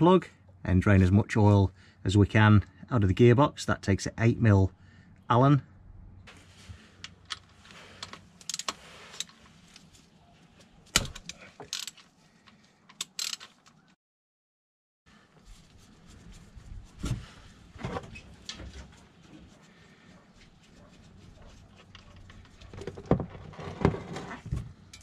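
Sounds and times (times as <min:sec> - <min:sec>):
ratchet clicking: 0:13.0 - 0:13.5.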